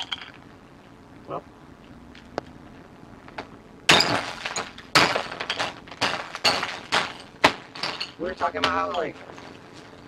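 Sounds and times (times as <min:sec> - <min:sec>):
glass crackling and clinking: 0:00.0 - 0:00.5, 0:03.9 - 0:10.0
glass screen smashing: 0:03.9 - 0:09.5.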